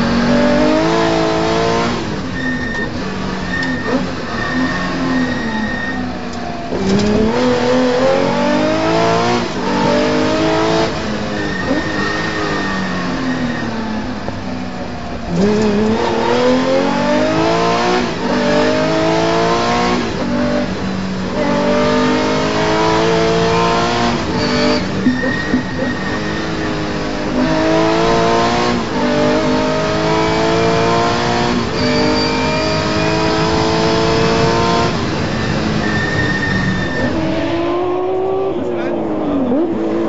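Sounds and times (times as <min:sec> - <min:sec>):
car engine accelerating: 0:00.0 - 0:40.0.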